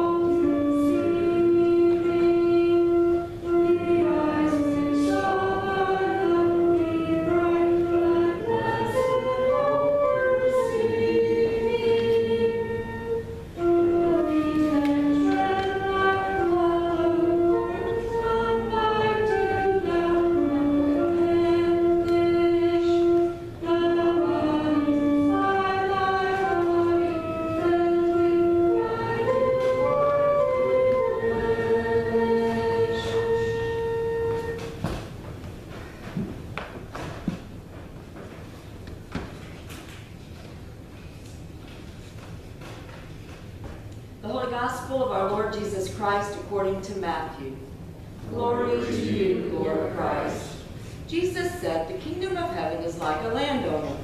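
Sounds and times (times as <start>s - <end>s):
choir and congregation singing hymn: 0.0s - 34.8s, 48.2s - 50.8s.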